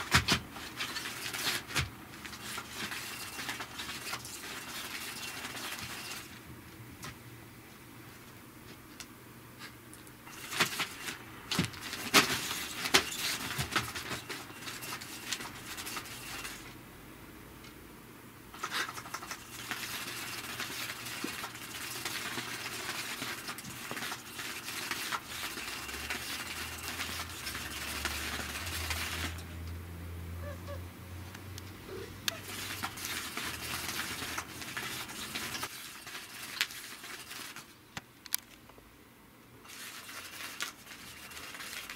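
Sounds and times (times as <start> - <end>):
cat toy wand scraping rustle: 32.3 - 37.7.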